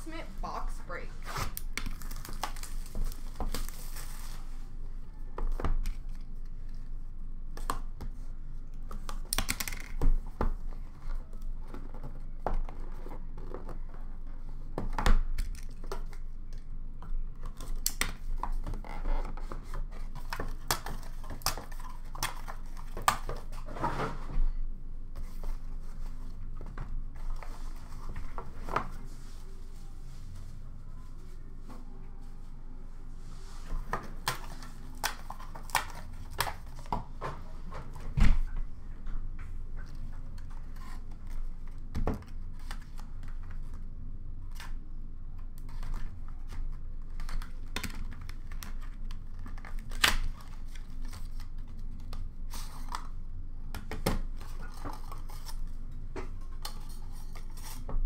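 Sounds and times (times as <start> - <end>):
plastic wrap crinkling and tearing: 1.5 - 4.5.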